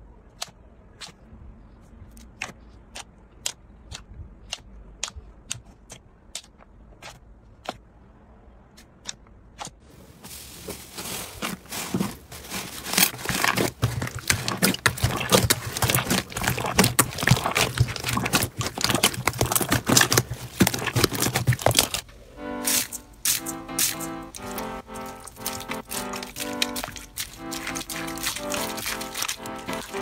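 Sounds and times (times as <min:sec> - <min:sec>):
slime squishing and popping: 0:12.8 - 0:22.0, 0:22.6 - 0:30.0.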